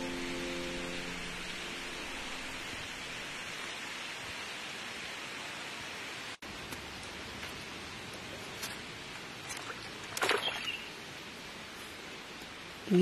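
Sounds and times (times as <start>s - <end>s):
outdoor background hiss: 0.0s - 13.0s
rustles: 6.5s - 13.0s.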